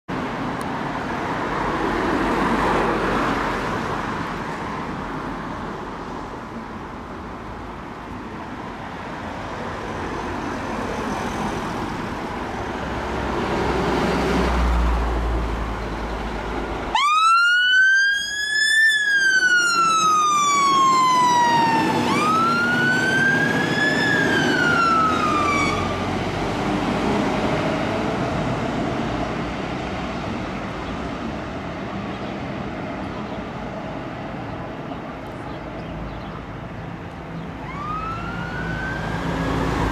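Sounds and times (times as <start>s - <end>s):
passing road traffic: 0.1s - 39.9s
fire engine siren wailing: 16.9s - 26.2s, 37.6s - 39.9s.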